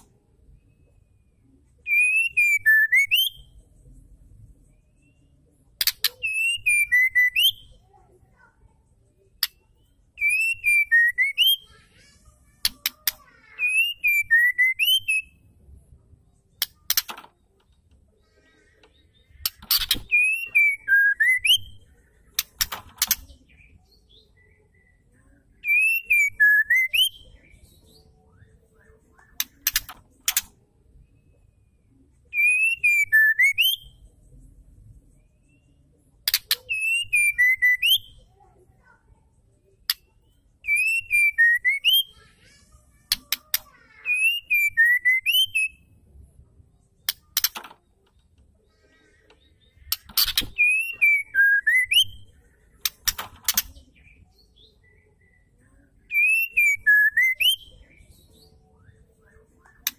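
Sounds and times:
bird whistled phrase: 1.9s - 3.5s, 6.1s - 7.7s, 13.6s - 15.3s, 25.6s - 27.4s, 32.3s - 34.0s, 44.0s - 45.9s, 50.2s - 52.3s, 56.1s - 57.8s
sharp clicks: 22.4s - 23.3s, 29.4s - 30.5s, 47.0s - 48.2s, 52.8s - 53.8s.

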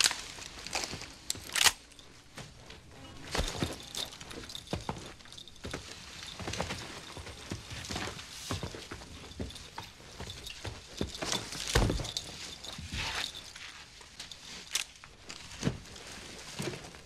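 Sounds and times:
boot footsteps on floor: 3.3s - 13.5s.

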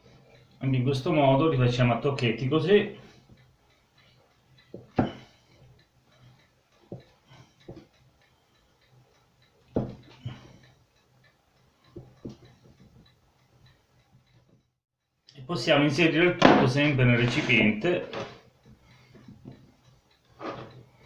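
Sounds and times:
knife knocking on wooden board: 9.8s - 10.0s.

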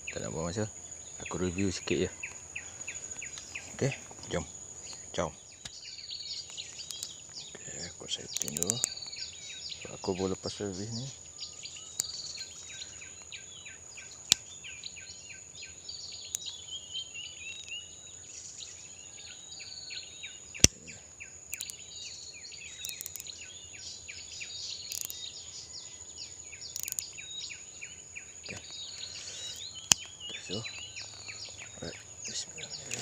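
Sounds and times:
birds chirping and calling: 0.0s - 33.0s
high insect drone: 0.0s - 33.0s
sharp clicks: 6.4s - 7.5s, 8.3s - 9.3s, 11.9s - 13.4s, 14.1s - 14.5s, 16.2s - 16.6s, 20.6s - 20.9s, 21.5s - 21.9s, 22.8s - 23.4s, 24.8s - 25.2s, 26.6s - 27.2s, 28.5s - 32.0s, 32.8s - 33.0s.

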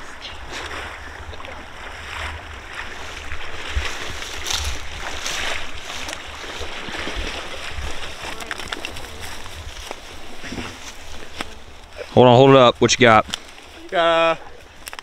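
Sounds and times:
dog swimming: 0.0s - 11.7s
wind rumbling on microphone: 0.0s - 12.0s
water sloshing and splashing: 0.0s - 12.2s
dry reeds rustling: 0.0s - 15.0s.

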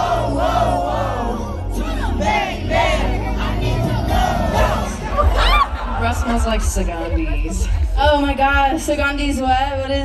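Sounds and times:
amplified singing: 0.0s - 6.0s
crowd singing along: 0.0s - 8.2s
heavy steady bass: 0.0s - 10.0s.

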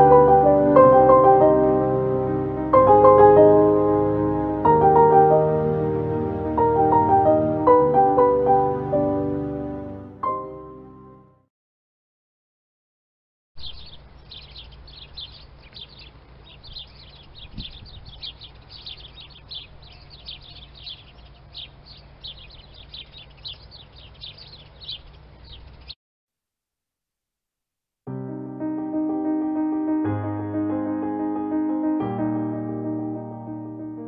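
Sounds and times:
sparrows chirping: 13.6s - 26.0s.

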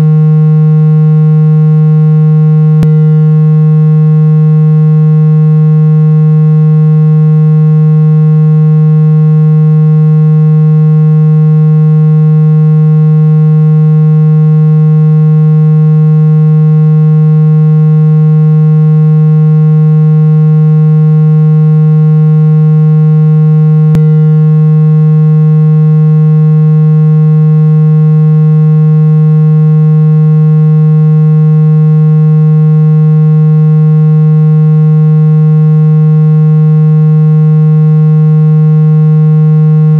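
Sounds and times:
low buzzing tone: 0.0s - 39.9s
brief click: 2.8s - 3.2s, 23.9s - 24.3s.

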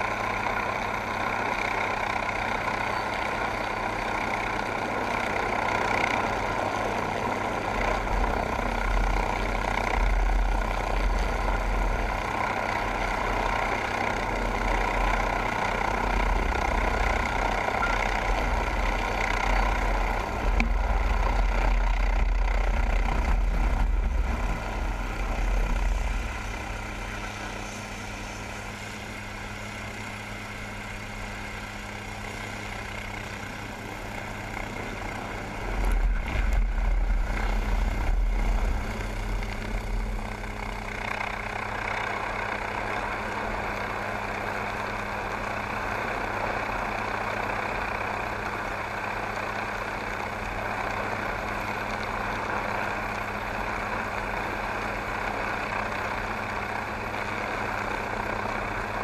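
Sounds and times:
helicopter engine and rotor hum: 0.0s - 59.0s
heavy low rumble: 18.1s - 28.7s, 35.4s - 40.9s.

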